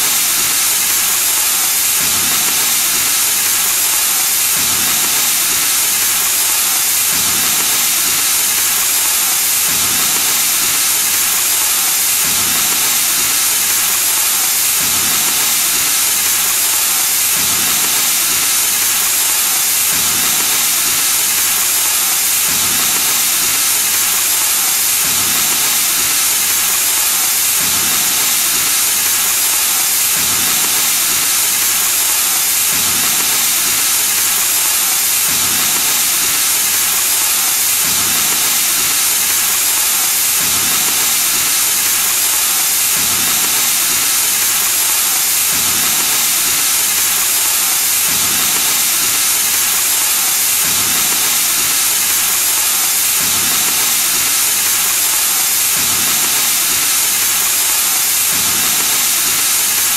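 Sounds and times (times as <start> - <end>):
cutting torch flame hissing: 0.0 - 59.9.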